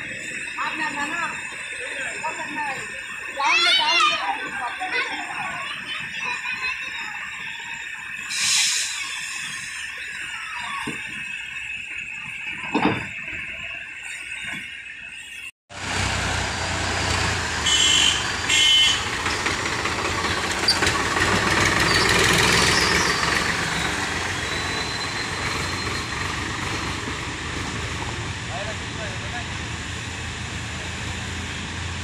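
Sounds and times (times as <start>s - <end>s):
tractor engine running: 15.8s - 32.0s.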